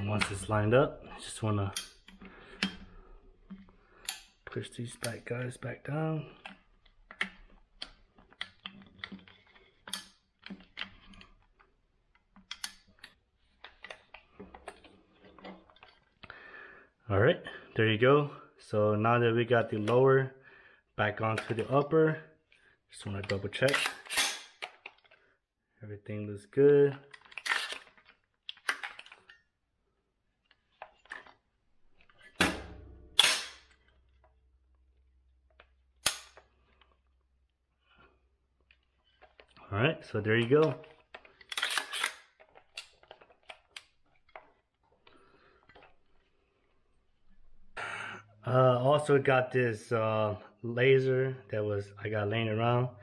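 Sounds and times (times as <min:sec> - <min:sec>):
rifle parts clicking: 0:23.2 - 0:25.2, 0:27.1 - 0:29.4, 0:32.0 - 0:34.3, 0:35.5 - 0:37.0, 0:40.6 - 0:45.0.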